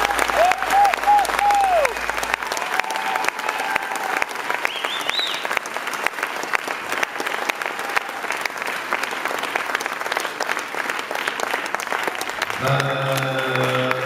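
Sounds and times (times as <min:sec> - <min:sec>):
high call from crowd: 0:00.0 - 0:05.5
audience applauding: 0:00.0 - 0:14.0.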